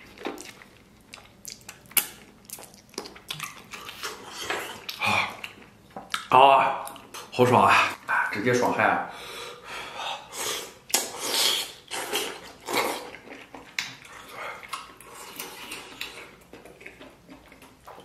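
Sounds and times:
chewing with smacking clicks: 0.0s - 7.3s, 11.9s - 18.0s
slurping and sucking: 10.2s - 13.2s.

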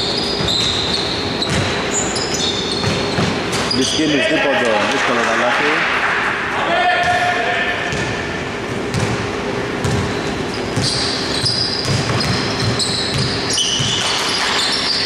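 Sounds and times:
sneakers squeaking on floor: 0.0s - 4.4s, 8.8s - 15.0s.

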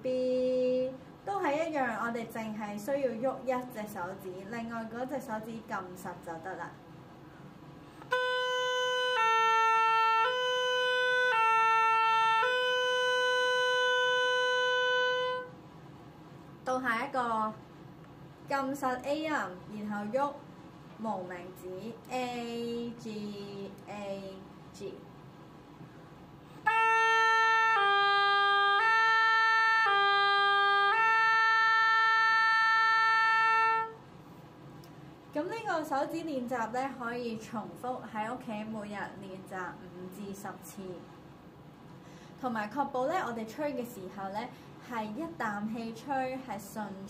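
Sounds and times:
oboe playing notes: 8.0s - 15.6s, 26.6s - 34.0s.

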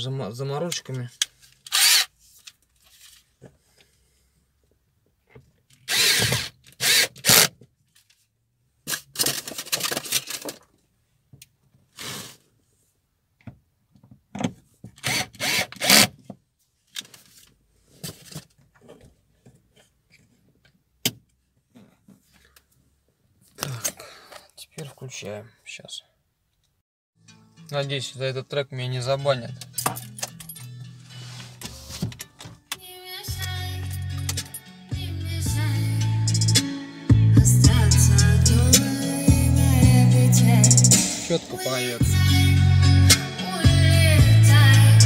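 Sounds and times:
cordless screwdriver bursts: 1.7s - 2.1s, 5.9s - 7.5s, 15.0s - 16.1s.

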